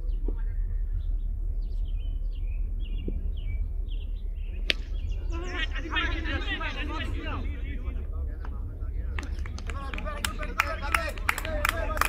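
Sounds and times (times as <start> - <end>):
birds chirping: 0.0 - 12.0
wind rumbling on microphone: 0.0 - 12.0
sharp crack: 4.6 - 5.2.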